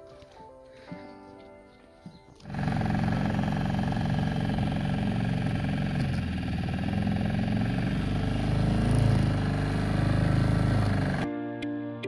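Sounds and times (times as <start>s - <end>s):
small boat engine running: 2.4s - 11.3s.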